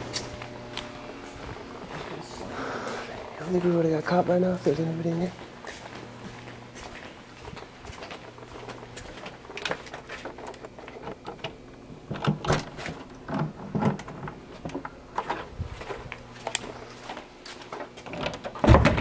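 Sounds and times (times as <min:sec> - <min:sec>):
footsteps: 0:00.0 - 0:11.0, 0:14.5 - 0:18.0
knocks and clicks underfoot: 0:00.0 - 0:19.0.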